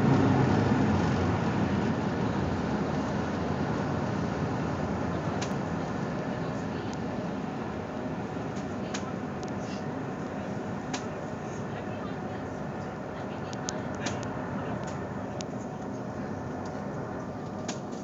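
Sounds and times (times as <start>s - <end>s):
water rushing in wake: 0.0s - 5.4s
ferry engine drone: 0.0s - 18.0s.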